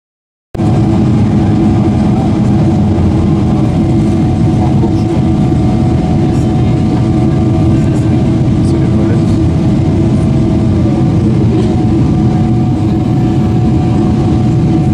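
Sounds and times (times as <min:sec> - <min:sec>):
rush of air and engine noise: 0:00.6 - 0:14.9
steady turbofan hums: 0:00.6 - 0:14.9.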